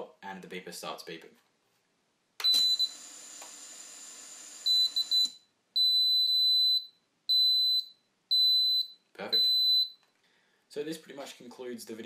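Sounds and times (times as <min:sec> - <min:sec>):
loud high buzzer beep: 0:02.4 - 0:03.2, 0:04.6 - 0:09.9.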